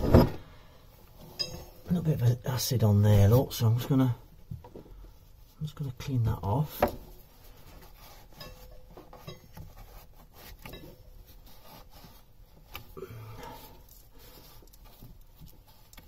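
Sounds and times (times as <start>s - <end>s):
cloth rag rubbing: 7.2s - 13.0s.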